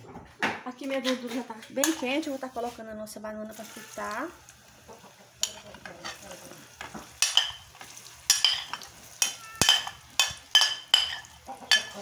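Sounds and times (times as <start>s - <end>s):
hot fat sizzling: 1.8s - 12.0s
metal skimmer clinking on glass bowl: 8.3s - 12.0s.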